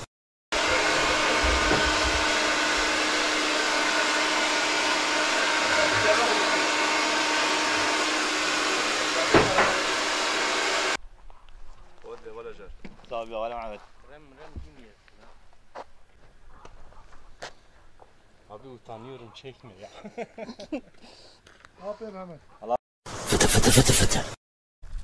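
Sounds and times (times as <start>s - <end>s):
mechanical whir: 0.6s - 3.5s
brief knock: 9.3s - 9.8s.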